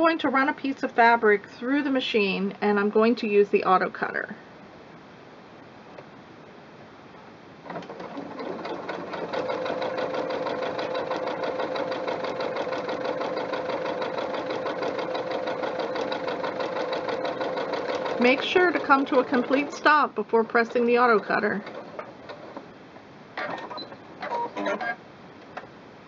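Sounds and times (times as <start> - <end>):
sewing machine motor hum: 7.6 - 20.0, 20.6 - 22.6
sewing machine needle clatter: 7.7 - 19.8.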